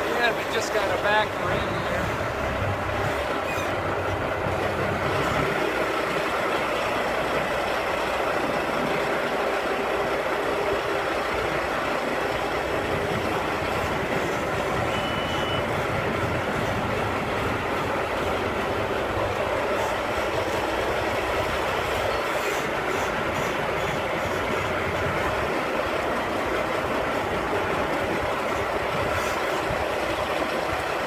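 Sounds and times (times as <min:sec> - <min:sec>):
diesel truck engine droning: 0:00.0 - 0:31.0
short high beep: 0:14.9 - 0:15.7.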